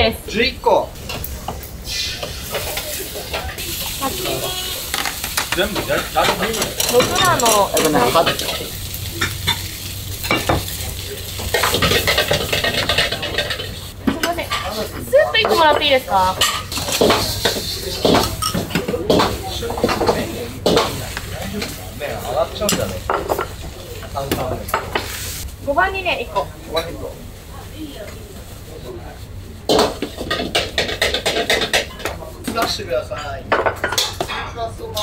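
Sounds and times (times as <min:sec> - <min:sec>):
food sizzling in hot oil: 0:00.9 - 0:28.0.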